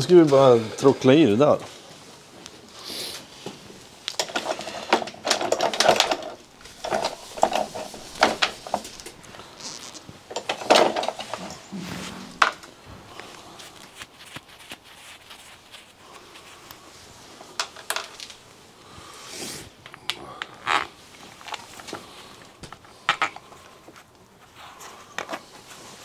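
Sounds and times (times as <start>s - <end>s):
metal parts clinking: 4.2s - 9.1s, 10.3s - 11.6s.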